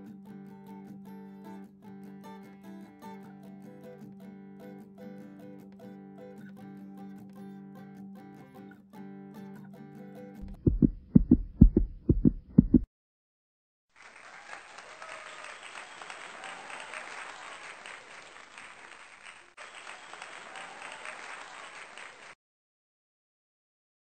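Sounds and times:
deep heavy thuds: 0:10.5 - 0:12.9.

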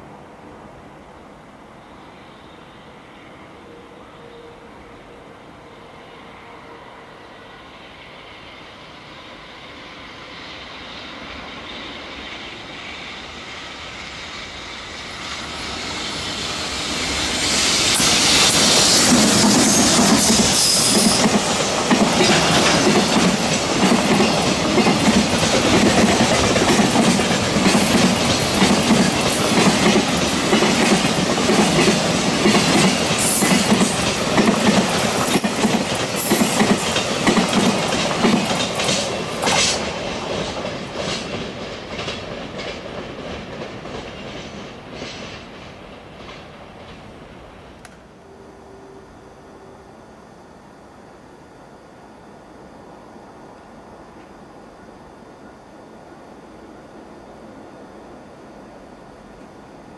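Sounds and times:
freight train passing: 0:00.0 - 0:59.9
wheels clacking over rail joints: 0:18.0 - 0:47.2.

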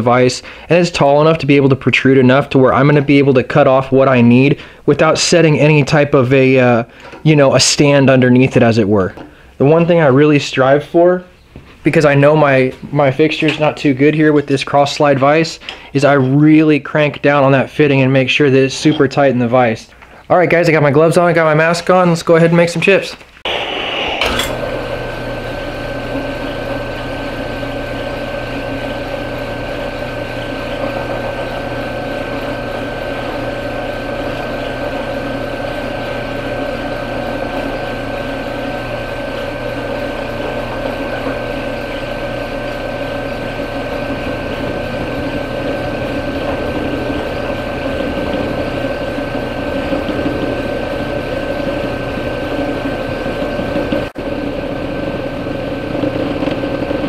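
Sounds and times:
drill press motor whining: 0:23.5 - 0:57.0
end mill cutting aluminum: 0:23.5 - 0:57.0.

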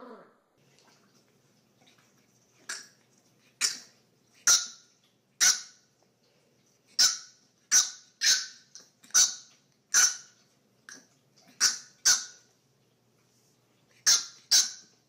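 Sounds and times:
puppy yapping: 0:07.0 - 0:12.4, 0:14.0 - 0:15.0.

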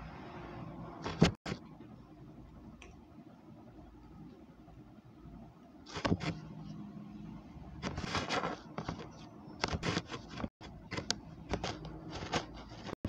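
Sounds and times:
paper rustling: 0:07.8 - 0:13.0.

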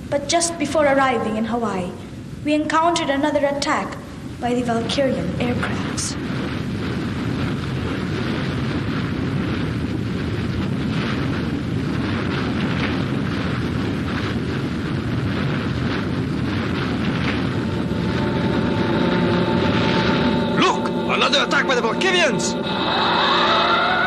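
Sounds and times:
droning aircraft tone: 0:16.5 - 0:24.0
boat engines rushing: 0:17.7 - 0:24.0.

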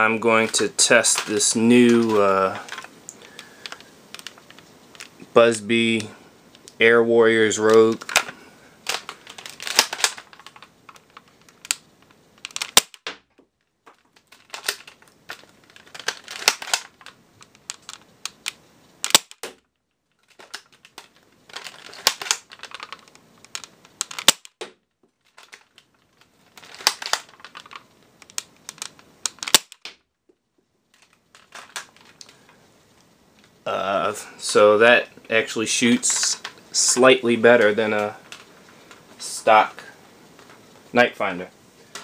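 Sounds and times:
toy blaster clicks and pops: 0:17.7 - 0:19.6, 0:23.5 - 0:24.7, 0:28.2 - 0:29.9.

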